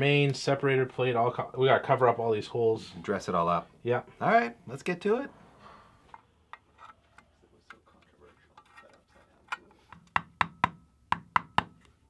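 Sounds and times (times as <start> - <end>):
hammer tapping metal: 9.9 - 11.9.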